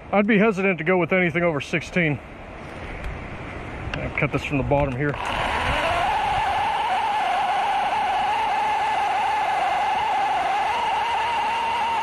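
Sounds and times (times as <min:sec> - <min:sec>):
electric chainsaw cutting wood: 0:05.1 - 0:12.0.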